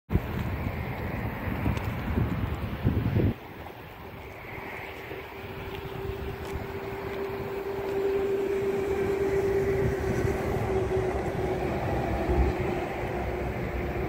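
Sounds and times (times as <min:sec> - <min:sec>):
distant engine drone: 0:00.1 - 0:14.0.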